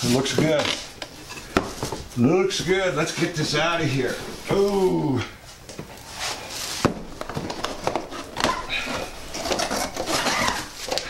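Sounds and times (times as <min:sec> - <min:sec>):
cardboard rustling and scraping: 0:06.1 - 0:11.0.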